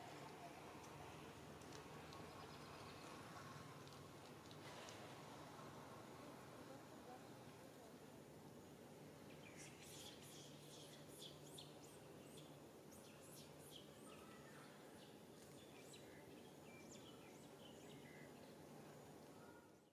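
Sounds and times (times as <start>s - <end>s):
low outdoor hiss: 0.0s - 19.9s
small birds chirping: 0.1s - 4.0s, 8.4s - 19.9s.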